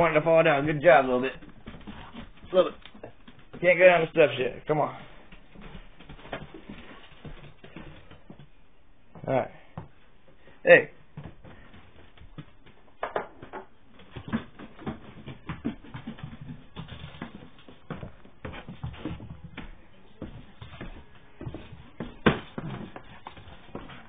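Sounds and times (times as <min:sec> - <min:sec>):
puppy playing taps and rustles: 0:01.4 - 0:03.7, 0:05.3 - 0:08.5, 0:11.2 - 0:24.0.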